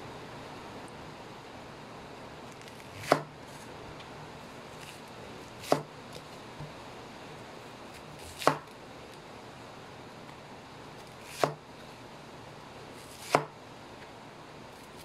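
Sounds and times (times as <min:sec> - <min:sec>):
knife chopping cabbage on board: 0:02.6 - 0:03.3, 0:04.8 - 0:06.2, 0:08.0 - 0:08.7, 0:11.0 - 0:11.6, 0:13.0 - 0:13.6.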